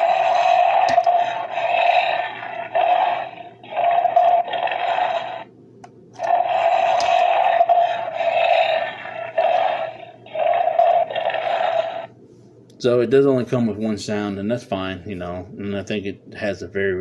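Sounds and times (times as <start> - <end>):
toy bear roar: 0.0 - 5.5, 6.2 - 12.1.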